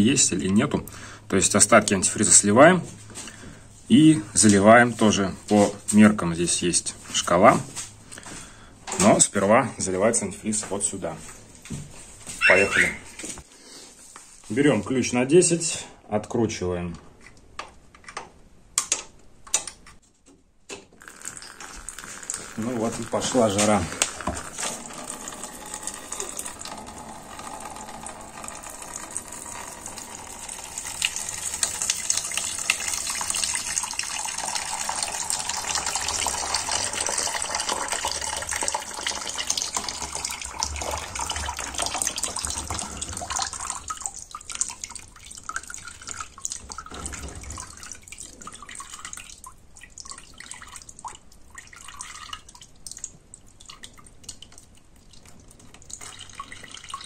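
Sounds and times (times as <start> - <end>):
liquid dripping: 21.0 - 57.0
liquid pouring into container: 21.0 - 57.0.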